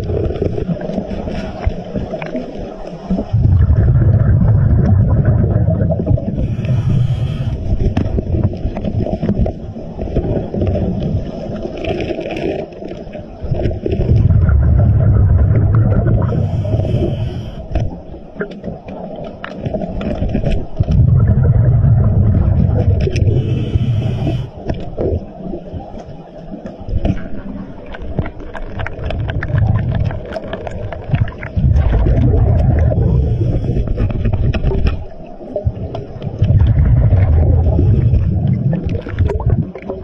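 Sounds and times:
bubbling exhaled air underwater: 0.0s - 40.0s
regulator inhalation hiss: 6.4s - 7.7s, 16.3s - 17.8s, 23.3s - 24.6s.

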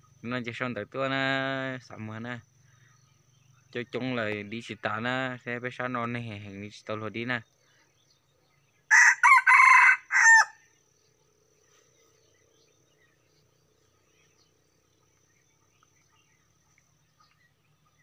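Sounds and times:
rooster crowing: 8.9s - 10.7s.

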